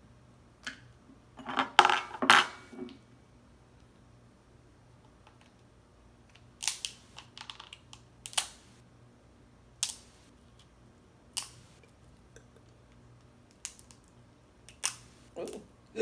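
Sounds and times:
crab shells cracking: 0:06.6 - 0:08.6, 0:13.5 - 0:14.1, 0:14.7 - 0:15.6.

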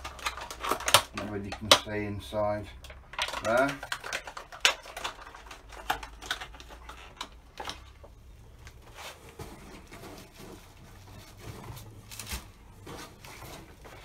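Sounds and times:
plastic packaging clicking and rustling: 0:00.0 - 0:14.0.

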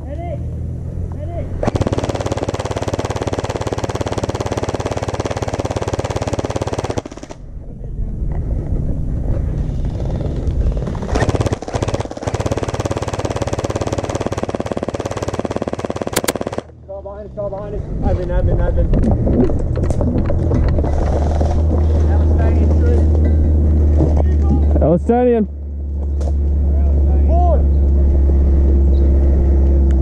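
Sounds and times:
gel blasters rapid firing: 0:01.6 - 0:07.4, 0:11.1 - 0:16.7.

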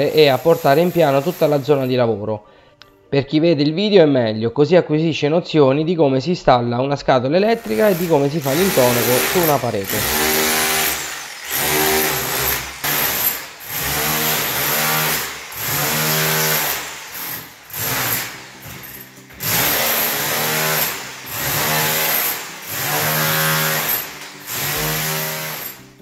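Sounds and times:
rotary hammer chiselling plaster: 0:07.6 - 0:25.8.

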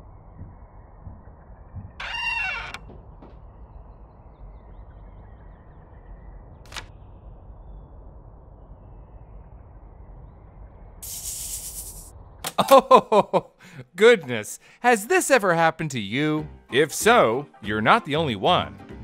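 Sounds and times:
low steady hum: 0:00.0 - 0:13.3
cartoon door creak: 0:02.0 - 0:03.4, 0:06.7 - 0:06.9
burst of hiss: 0:11.0 - 0:12.1.

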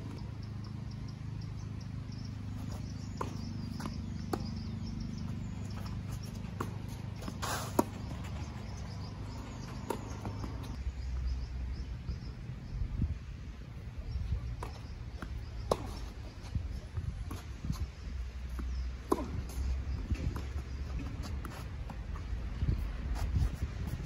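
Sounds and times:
faint bird or insect chirping: 0:00.0 - 0:13.4, 0:14.0 - 0:21.6
tennis ball bounces: 0:02.0 - 0:10.8, 0:14.4 - 0:22.8.

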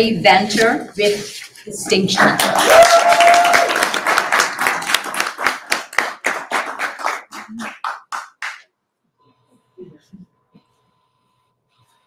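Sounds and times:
audience applause: 0:02.2 - 0:08.6.

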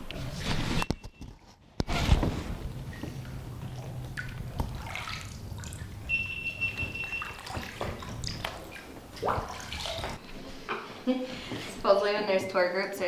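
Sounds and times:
water lapping and dripping: 0:02.3 - 0:10.6
echoing splashes and drips: 0:02.6 - 0:10.2.

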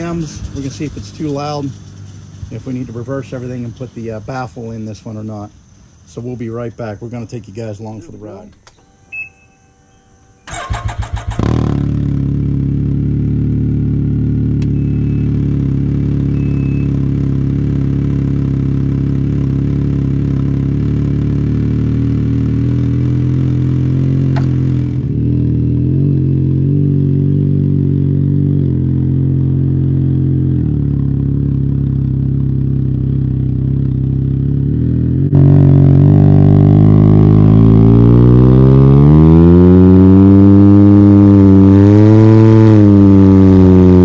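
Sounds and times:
engine idling: 0:00.0 - 0:07.0, 0:13.9 - 0:26.5
engine cranking and starting: 0:10.4 - 0:11.9.

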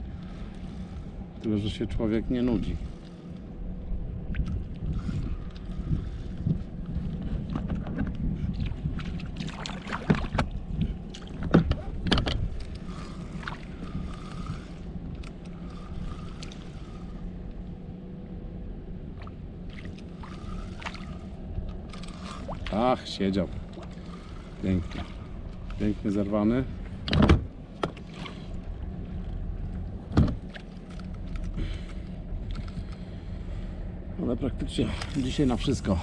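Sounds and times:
waves lapping against boat hull: 0:00.0 - 0:36.0
sharp knocks and splashes: 0:07.5 - 0:12.4, 0:19.2 - 0:22.9.

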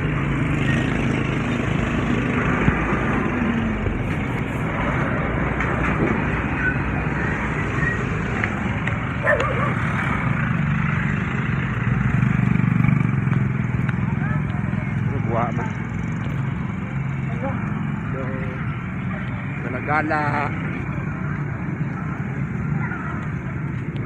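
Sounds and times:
vehicle engine and road noise: 0:00.0 - 0:24.0.

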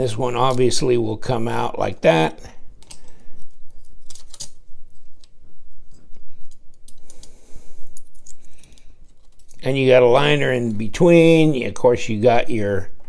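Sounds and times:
small steel parts clicking and scraping: 0:02.8 - 0:05.3, 0:05.9 - 0:09.7.

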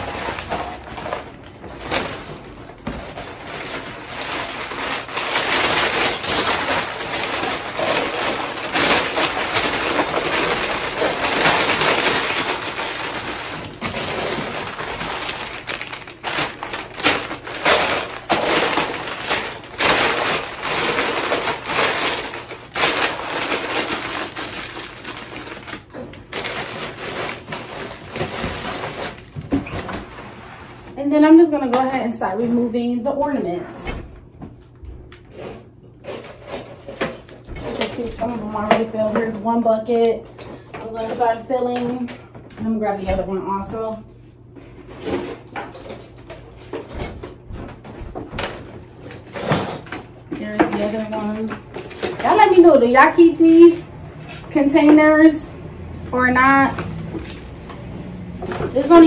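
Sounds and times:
wrapping material crinkling: 0:00.0 - 0:29.4.

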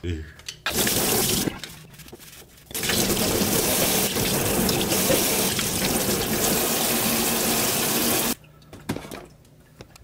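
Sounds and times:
faucet running into a steel sink: 0:02.8 - 0:08.4.

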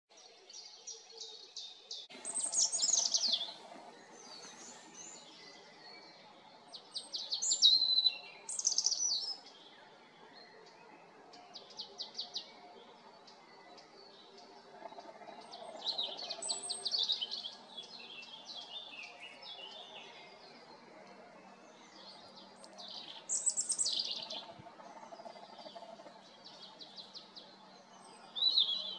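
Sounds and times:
robin singing: 0:00.5 - 0:28.9.

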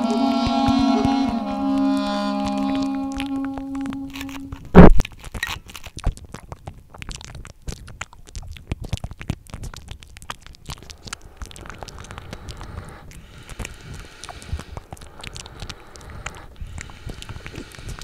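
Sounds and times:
close chewing: 0:00.0 - 0:18.0
bread crust tearing: 0:04.2 - 0:11.9.

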